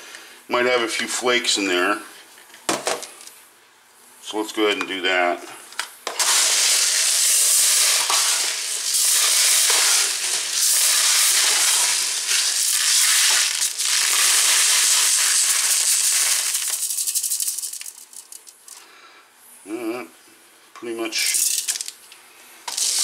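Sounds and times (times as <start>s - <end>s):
pellets rattling through metal sieve: 6.2s - 18.5s, 21.2s - 21.9s, 22.7s - 23.0s.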